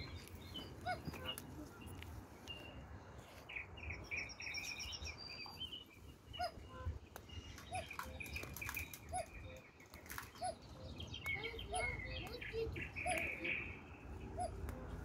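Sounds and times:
birds singing and chirping: 0.0 - 15.0
leaves rustling and clicking: 7.2 - 11.5.

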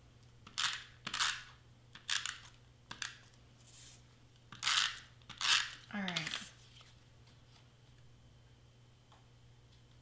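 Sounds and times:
tape runner scratchy zip: 4.6 - 5.8.

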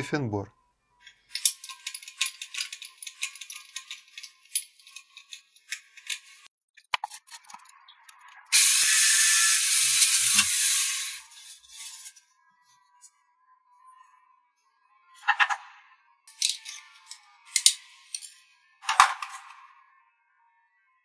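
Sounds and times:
metal parts clinking: 1.3 - 7.7, 16.3 - 19.6
drill whirring through steel: 8.5 - 12.2.

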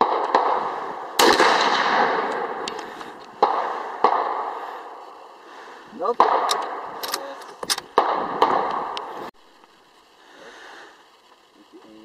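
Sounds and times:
gunshots with rolling echo: 0.0 - 5.0, 6.0 - 9.1.

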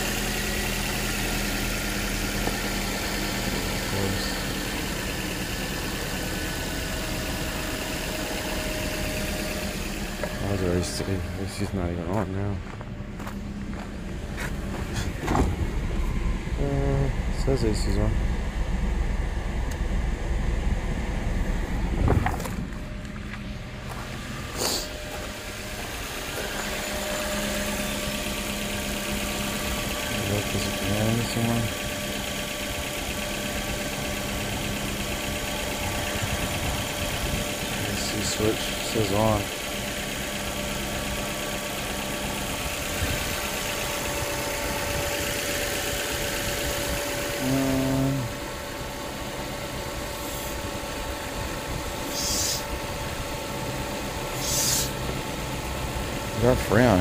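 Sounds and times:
car engine idling: 0.0 - 57.0
car door thumping shut: 15.1 - 15.6.

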